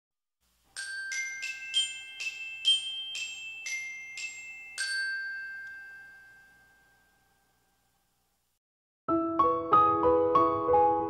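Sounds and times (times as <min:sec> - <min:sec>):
chime melody: 0:00.7 - 0:07.8.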